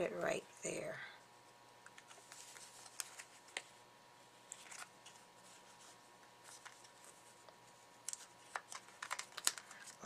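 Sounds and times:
paper clicks and rustles: 0:01.9 - 0:03.7, 0:04.4 - 0:10.0.

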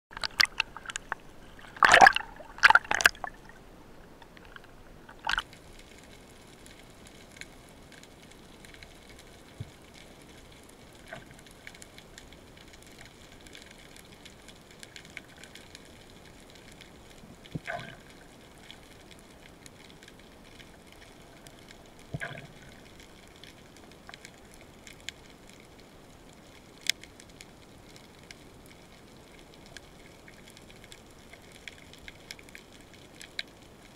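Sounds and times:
water splashing: 0:00.1 - 0:05.6, 0:22.1 - 0:23.0.

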